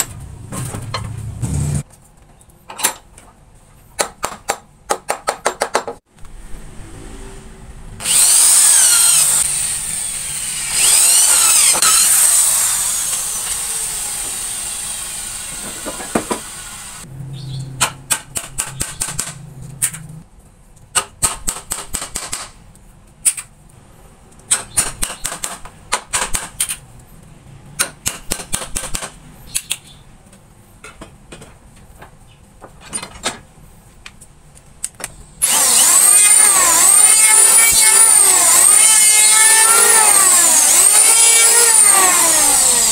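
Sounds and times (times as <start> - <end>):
wood and tools knocking: 4.0 - 6.0, 15.5 - 16.5, 30.8 - 33.4
woodworking power tool whine: 8.0 - 17.0, 35.4 - 42.9.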